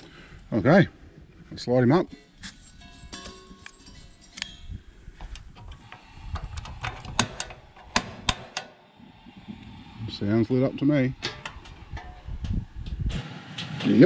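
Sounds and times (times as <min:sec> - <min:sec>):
igniter clicking: 0:05.2 - 0:08.8.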